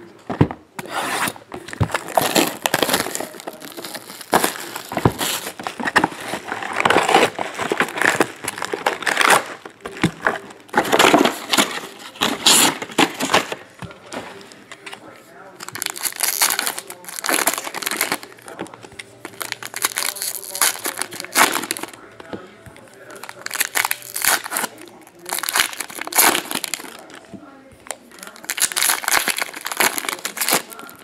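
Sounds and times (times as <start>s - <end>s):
cardboard box being opened: 0.4s - 14.3s
foil packs crinkling: 0.8s - 22.2s, 22.8s - 31.0s.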